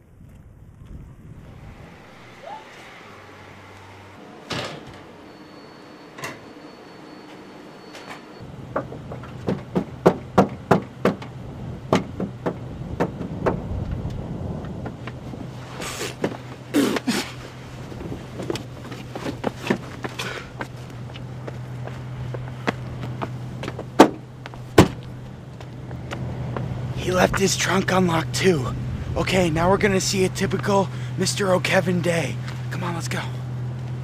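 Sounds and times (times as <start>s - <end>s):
low hum: 0.0s - 6.8s, 7.8s - 34.0s
sharp knocks: 8.7s - 11.3s, 11.9s - 13.6s.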